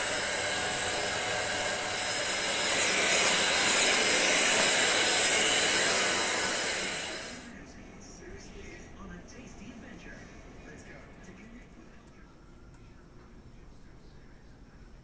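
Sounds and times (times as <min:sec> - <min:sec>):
vacuum cleaner whining: 0:00.0 - 0:07.5.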